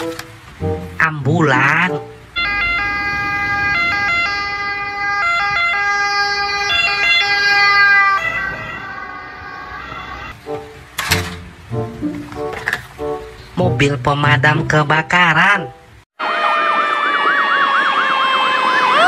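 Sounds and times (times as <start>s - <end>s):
ambulance two-tone siren: 2.0s - 10.6s.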